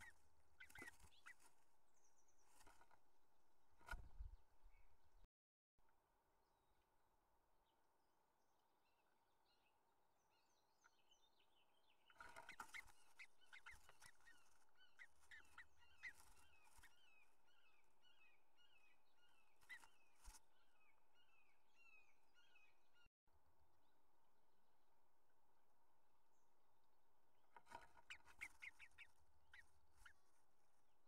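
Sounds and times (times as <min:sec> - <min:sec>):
knocks and rustles in nest: 0:00.0 - 0:01.7, 0:02.3 - 0:03.1, 0:03.7 - 0:04.4, 0:12.1 - 0:18.0, 0:19.2 - 0:20.5, 0:27.5 - 0:30.4
wings and claws scuffling on wood: 0:00.0 - 0:01.7, 0:02.3 - 0:03.0, 0:12.1 - 0:17.4, 0:19.5 - 0:20.5.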